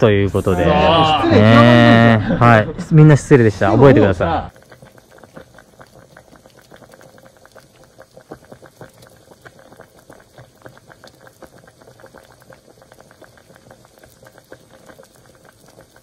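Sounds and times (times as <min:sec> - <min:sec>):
liquid bubbling: 0:04.5 - 0:16.0.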